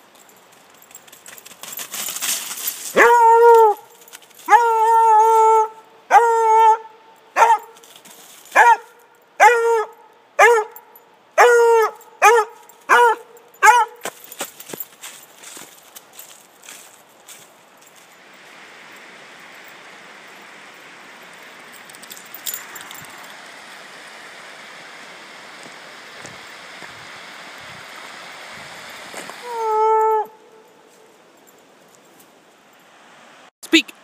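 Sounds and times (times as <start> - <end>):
dog baying: 3.0 - 7.8, 8.6 - 10.8, 11.4 - 14.0.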